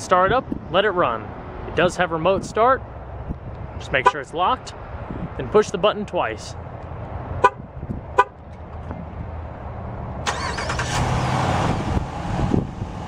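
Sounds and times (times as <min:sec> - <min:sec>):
car horn chirps: 0:08.2 - 0:08.4
car engine cranking and starting: 0:10.2 - 0:12.9.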